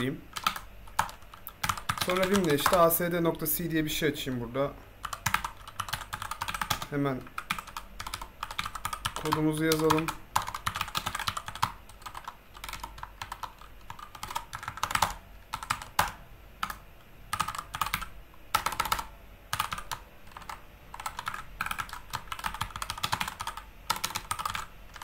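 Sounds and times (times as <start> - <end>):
keyboard typing: 0.0 - 3.5, 5.0 - 25.0.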